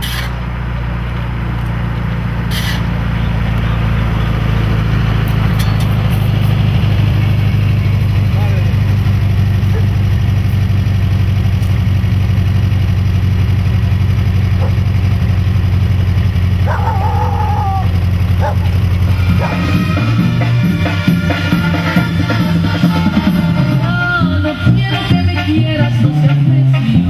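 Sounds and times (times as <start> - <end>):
vehicle engine droning: 0.0 - 27.0
music with drums: 19.1 - 27.0.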